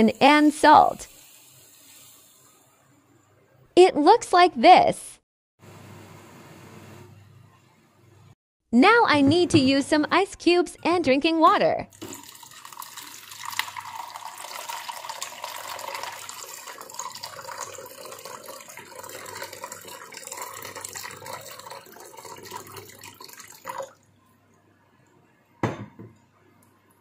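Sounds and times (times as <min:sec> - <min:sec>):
water pouring onto ice cubes: 0:12.0 - 0:24.0.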